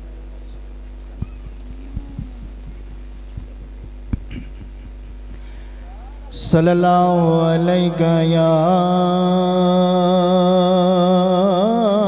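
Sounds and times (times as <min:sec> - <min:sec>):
sound system electrical hum: 0:00.0 - 0:12.0
microphone handling thumps: 0:01.1 - 0:05.4.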